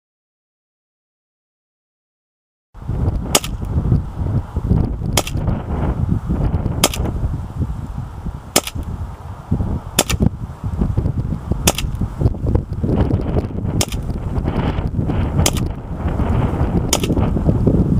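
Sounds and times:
airsoft pistol shots: 3.3s - 3.7s, 5.2s - 5.4s, 6.8s - 7.1s, 8.5s - 8.9s, 10.0s - 10.2s, 11.6s - 12.0s, 13.8s - 14.1s, 15.4s - 15.7s, 16.9s - 17.2s.

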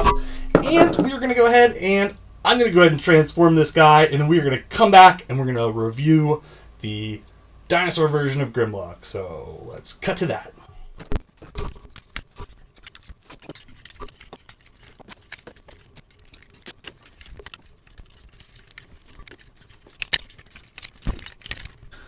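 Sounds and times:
plastic toy parts clicking: 11.9s - 22.0s.

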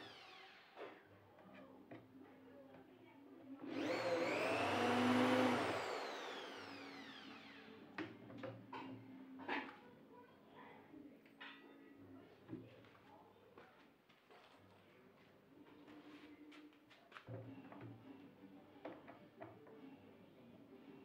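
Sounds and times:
electric motor spinning: 3.7s - 7.8s.

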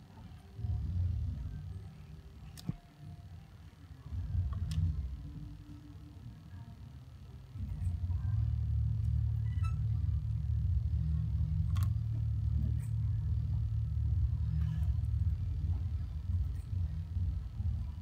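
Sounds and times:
low rumble: 7.6s - 18.0s.

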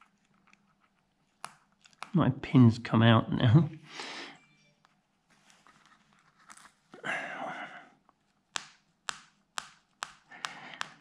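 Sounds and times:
soft rustle: 4.9s - 7.0s.

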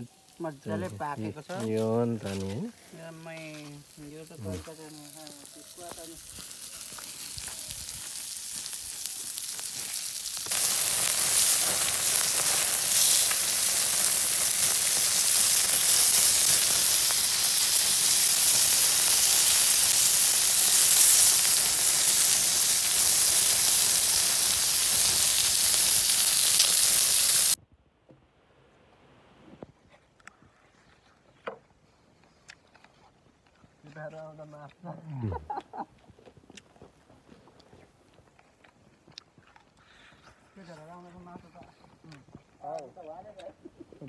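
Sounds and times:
meat sizzling on hot stone: 0.0s - 27.6s.

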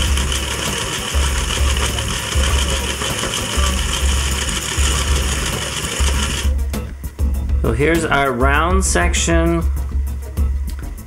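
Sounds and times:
toy electric motor running: 0.0s - 6.5s.

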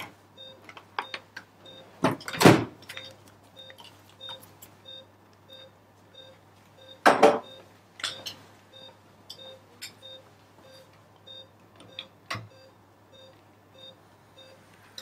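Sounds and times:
pulse oximeter beeping: 3.0s - 14.6s.

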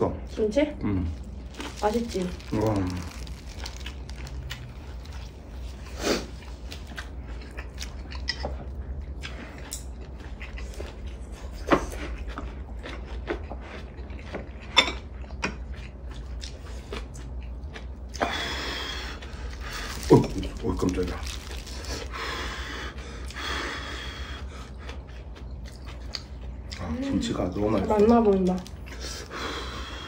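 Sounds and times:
steady low hum: 0.0s - 30.0s
chewing and mouth smacks: 3.3s - 18.4s, 24.4s - 26.9s.

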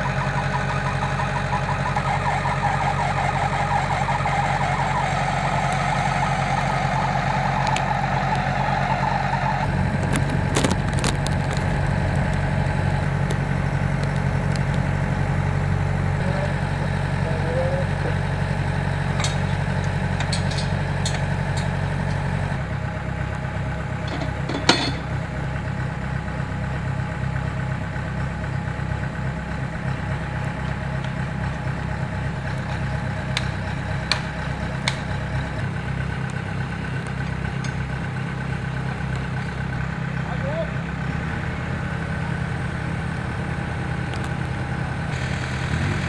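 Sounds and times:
engine idling: 0.0s - 46.0s.

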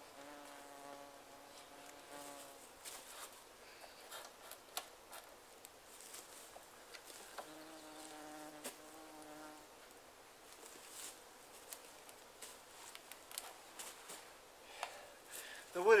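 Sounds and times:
flying insect buzzing: 0.0s - 3.4s, 7.2s - 9.8s.

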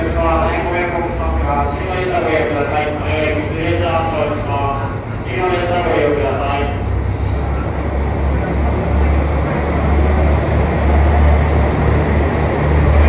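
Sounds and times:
electric train humming: 0.0s - 13.0s
broad even rumble: 4.8s - 13.0s.

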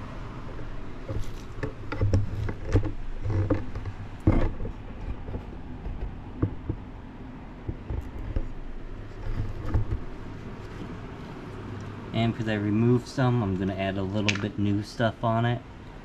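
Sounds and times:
steady low hum: 0.0s - 16.0s
towel rubbing and handling: 8.7s - 11.5s.

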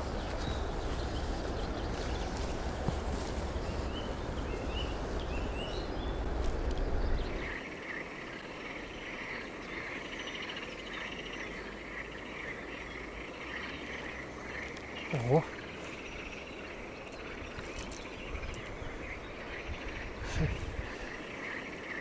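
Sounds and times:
wind rumbling on microphone: 0.0s - 7.6s, 16.1s - 21.3s
insects chirring: 0.0s - 22.0s.

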